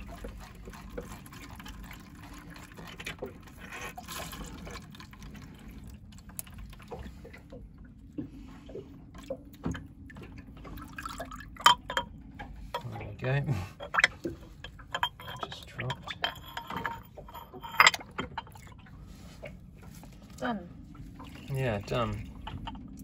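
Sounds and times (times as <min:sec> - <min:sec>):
fuel dripping into container: 0:00.0 - 0:20.2, 0:20.8 - 0:23.0.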